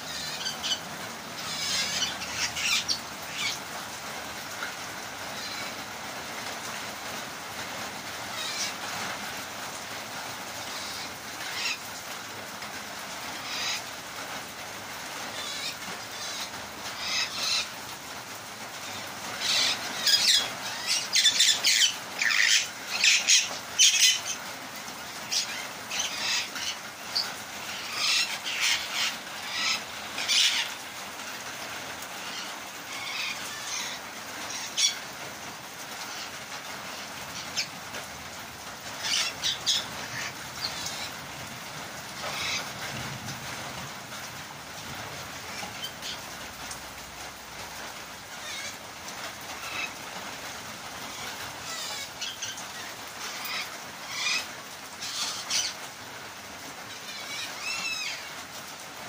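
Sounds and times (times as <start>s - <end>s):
parrot calls: 0.0s - 3.6s, 5.3s - 5.8s, 8.3s - 8.8s, 10.6s - 11.8s, 13.4s - 13.9s, 15.3s - 17.8s, 18.8s - 24.5s, 25.2s - 30.8s, 32.2s - 35.2s, 39.0s - 41.2s, 42.2s - 42.8s, 48.4s - 48.8s, 49.5s - 50.0s, 51.0s - 55.9s, 56.8s - 58.4s
rain hissing: 0.0s - 59.0s.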